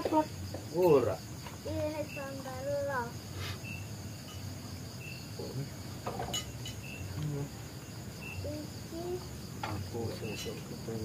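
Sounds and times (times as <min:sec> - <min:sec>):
crickets trilling: 0:00.0 - 0:11.0
short insect chirps: 0:00.1 - 0:11.0
dishes clinking: 0:06.0 - 0:06.9.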